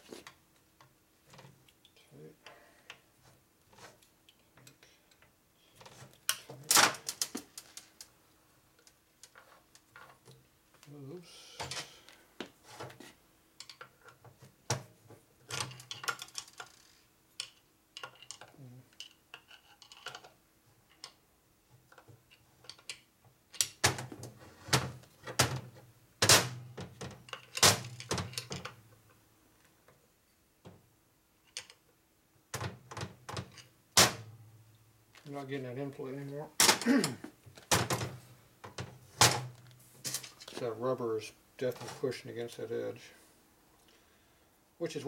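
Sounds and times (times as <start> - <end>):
metal parts clicking and knocking: 15.5 - 16.8, 17.4 - 21.2.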